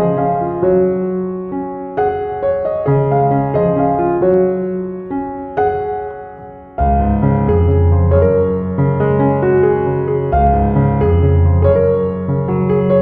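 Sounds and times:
gentle piano music: 0.0s - 13.0s.

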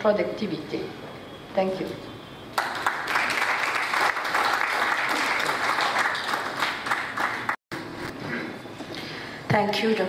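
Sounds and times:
audience applauding: 2.5s - 7.6s.

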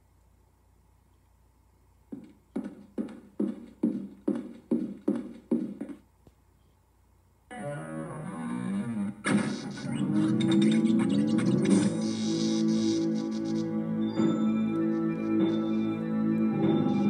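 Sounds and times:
cartoon footsteps: 2.1s - 6.1s.

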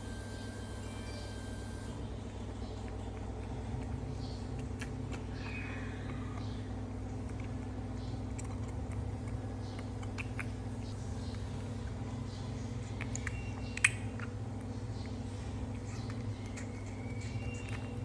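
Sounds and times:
low mechanical hum: 0.0s - 18.0s
baby monkey sucking on bottle: 11.3s - 18.0s.

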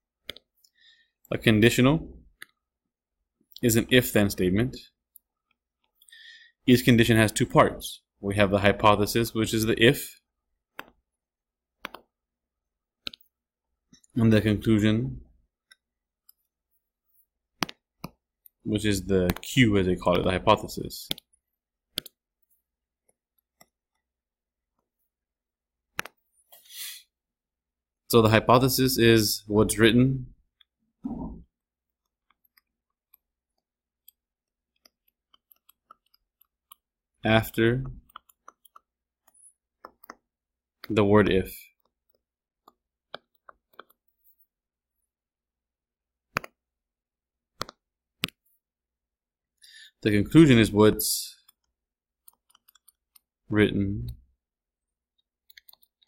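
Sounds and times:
stylus tapping tablet screen: 10.7s - 12.2s, 13.0s - 14.2s, 15.6s - 24.1s, 25.9s - 26.6s, 30.5s - 44.5s, 46.2s - 46.7s, 47.5s - 48.6s, 51.4s - 53.4s
mouse clicks: 11.8s - 12.1s, 21.0s - 22.2s, 25.9s - 26.2s, 46.3s - 46.6s, 47.6s - 48.4s, 55.4s - 56.0s.

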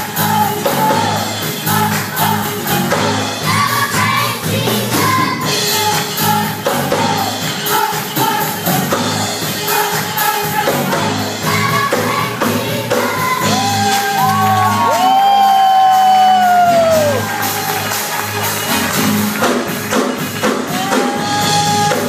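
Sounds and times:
band accompaniment: 0.0s - 22.0s
children's choir singing gospel: 0.0s - 22.0s
audience whooping and shouting: 13.4s - 19.2s, 20.7s - 22.0s.

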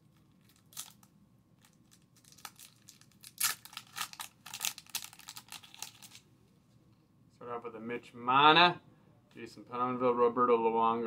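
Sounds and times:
card pack wrapper tearing: 0.4s - 6.2s.

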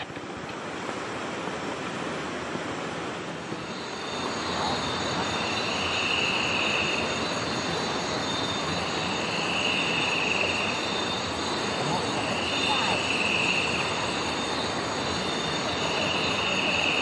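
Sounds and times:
river flowing over stones: 0.0s - 17.0s
night insects shrilling: 3.6s - 17.0s.

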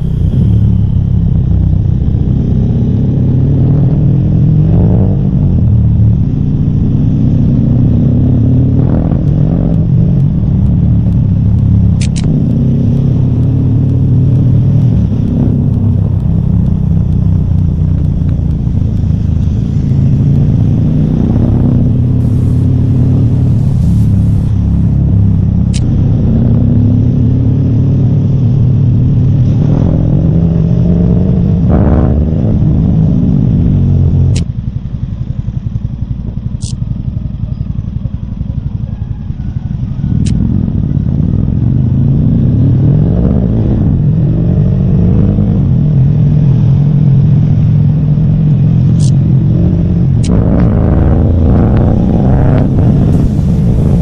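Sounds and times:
engine revving: 0.0s - 34.5s, 40.0s - 54.0s
faint sharp ticks: 9.2s - 19.5s, 36.6s - 36.8s, 48.9s - 49.2s.

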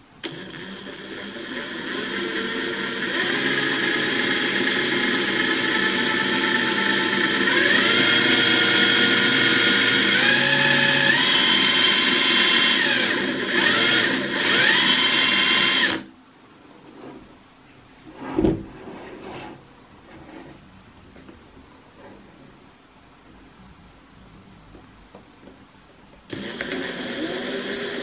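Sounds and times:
impact driver motor whine: 0.2s - 16.1s, 26.3s - 28.0s.

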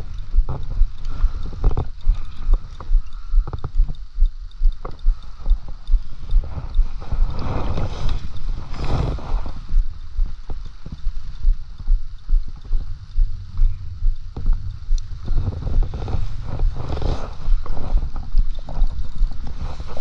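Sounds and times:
fishing reel knocking: 0.0s - 20.0s
wind gusts on microphone: 5.9s - 20.0s.

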